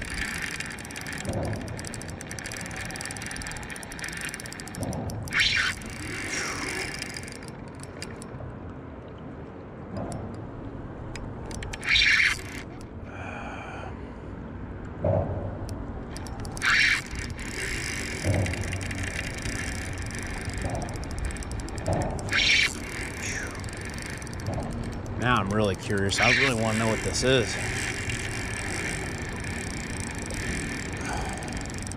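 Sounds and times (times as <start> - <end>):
fishing reel drag buzzing: 0.0 - 8.3, 11.4 - 12.9, 16.1 - 31.9.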